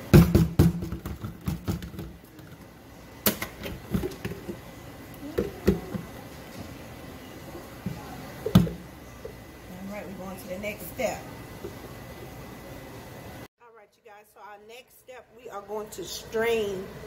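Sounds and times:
plastic knocking: 0:03.9 - 0:04.6, 0:05.4 - 0:06.1.

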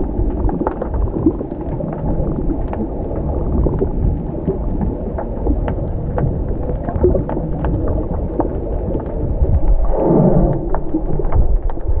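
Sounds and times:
faint underwater clicks: 0:00.0 - 0:12.0
underwater rumbling: 0:00.0 - 0:12.0
water rush: 0:07.2 - 0:12.0.

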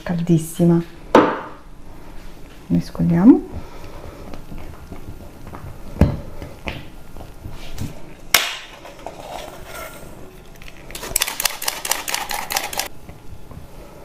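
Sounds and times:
flour sifter clicking rapidly: 0:10.9 - 0:12.9.

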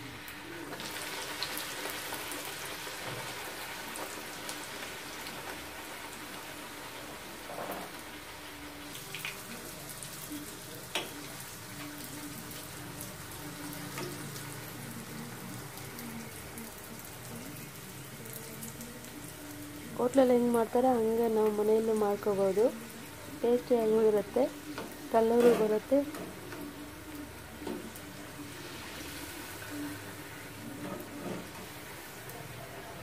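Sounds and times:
deep-frying sizzle in oil: 0:00.0 - 0:33.0.

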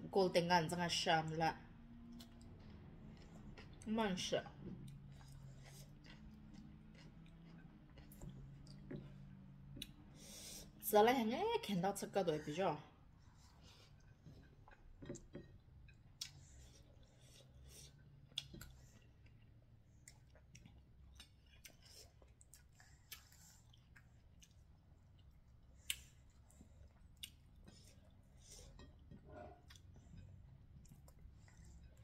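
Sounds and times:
chewing and mouth smacks: 0:02.1 - 0:03.8, 0:04.6 - 0:10.0, 0:13.9 - 0:32.0.

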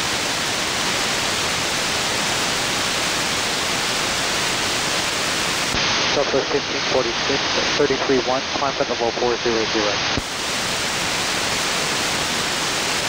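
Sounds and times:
radio receiver hiss: 0:05.0 - 0:10.9.

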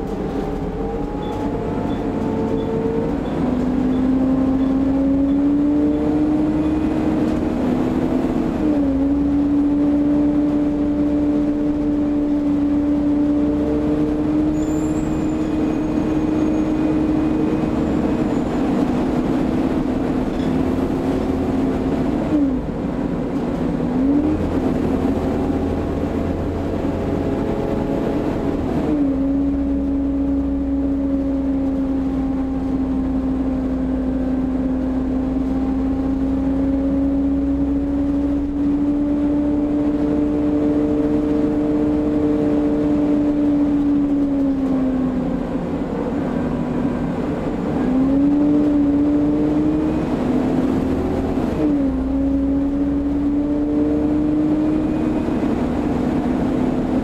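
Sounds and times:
bus engine and driveline whine: 0:00.0 - 0:57.0.

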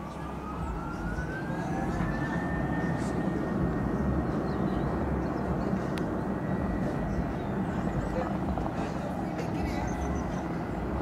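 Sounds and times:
jet engine rumble: 0:00.0 - 0:11.0
jet engine whine rising: 0:00.0 - 0:11.0.

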